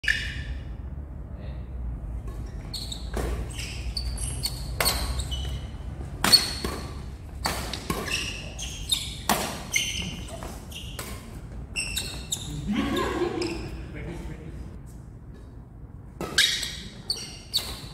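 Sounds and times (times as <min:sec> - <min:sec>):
shoes squeaking on court floor: 0:00.0 - 0:00.7, 0:02.3 - 0:13.9, 0:16.2 - 0:17.9
racket hitting shuttlecock: 0:02.2 - 0:12.4, 0:15.4 - 0:16.9.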